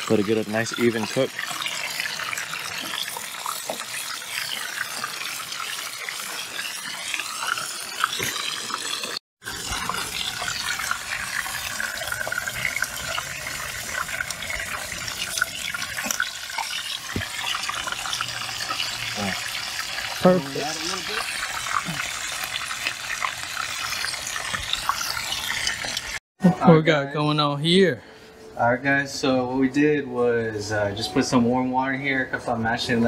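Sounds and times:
fish sizzling in hot oil: 0.0s - 26.2s.

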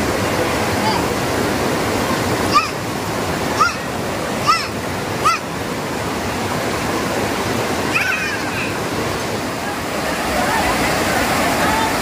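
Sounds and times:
stream and waterfall rushing: 0.0s - 12.0s.

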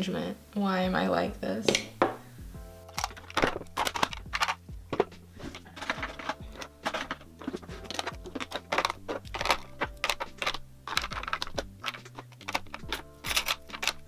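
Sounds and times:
soft background music: 0.0s - 14.0s
plastic items clacking on acrylic: 2.8s - 14.0s.

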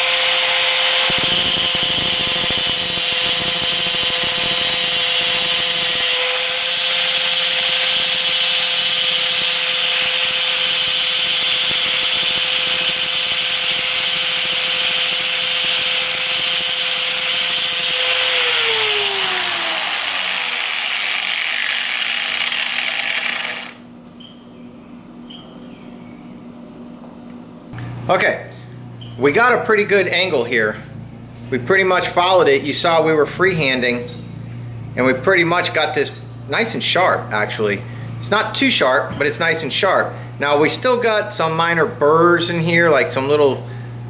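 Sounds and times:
angle grinder grinding metal: 0.0s - 23.8s
grinder spinning down: 0.0s - 23.8s.

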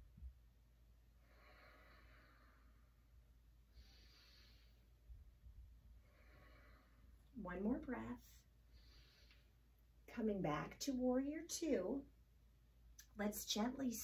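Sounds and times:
soft human breathing: 1.2s - 5.3s, 5.9s - 7.3s, 8.6s - 9.8s.

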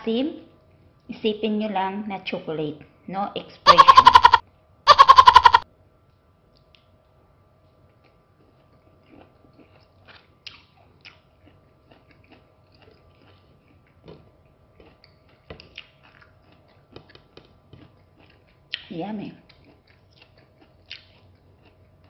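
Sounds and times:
wet chewing and sucking: 7.8s - 14.1s, 14.7s - 22.0s.

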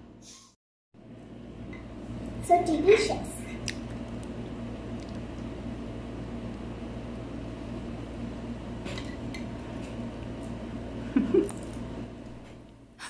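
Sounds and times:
child's voice: 2.4s - 3.6s.

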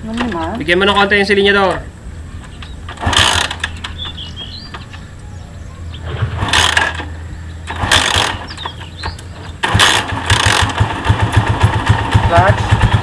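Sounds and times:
motorcycle engine turning over: 2.4s - 5.2s, 6.0s - 13.0s.

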